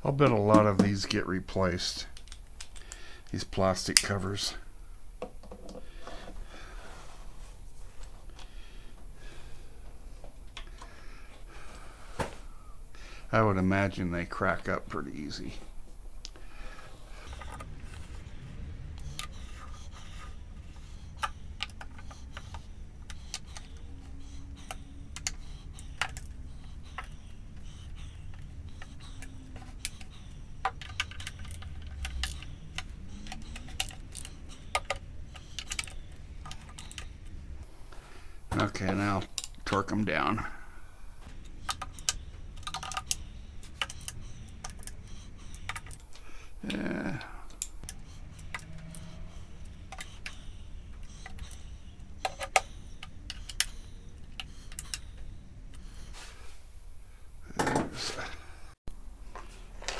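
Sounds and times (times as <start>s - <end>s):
hand ratchet clicking: 28.3s - 37.1s.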